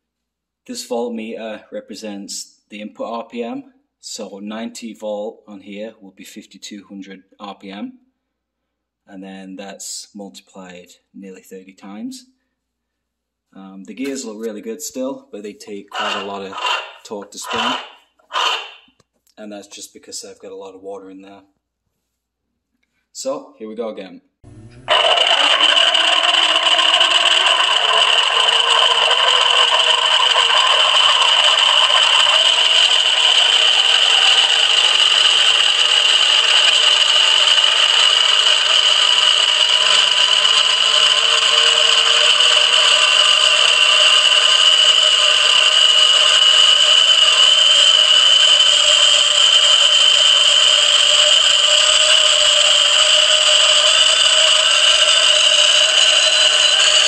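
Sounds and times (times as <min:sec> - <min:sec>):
gears whining: 0:15.9 - 0:18.9, 0:24.4 - 0:57.0
rattling and churning water: 0:24.9 - 0:57.0.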